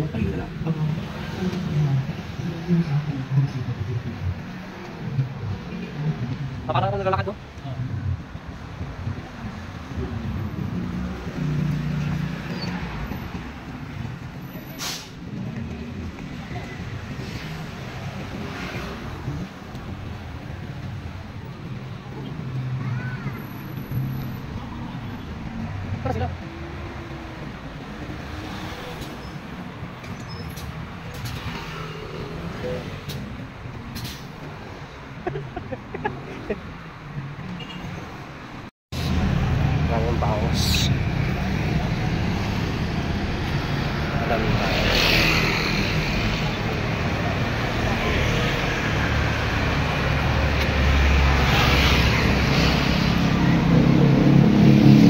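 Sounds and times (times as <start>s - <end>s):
traffic engines rumbling: 0.0s - 55.0s
short sharp hiss: 14.8s - 15.2s
vehicle passing: 39.0s - 55.0s.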